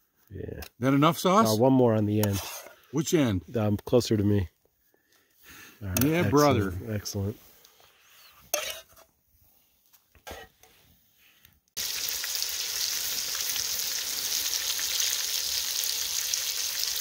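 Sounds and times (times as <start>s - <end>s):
meat sizzling in a skillet: 11.8s - 17.0s.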